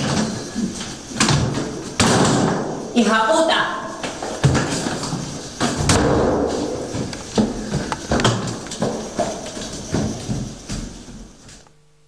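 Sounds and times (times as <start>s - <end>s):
rustling and shuffling: 0.0s - 2.8s, 3.8s - 11.8s
thumps and knocks: 4.0s - 11.6s.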